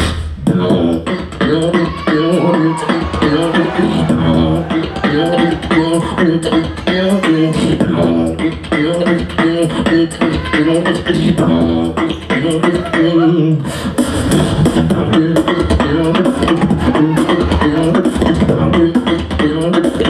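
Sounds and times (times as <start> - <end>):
beatboxing into a microphone: 0.0 - 20.0
melodic voice line: 0.7 - 13.6.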